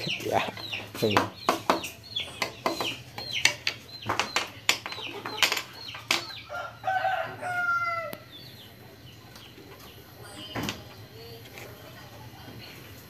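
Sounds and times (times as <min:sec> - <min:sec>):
chickens clucking: 0:00.0 - 0:13.0
drawn-out chicken call: 0:06.4 - 0:08.3.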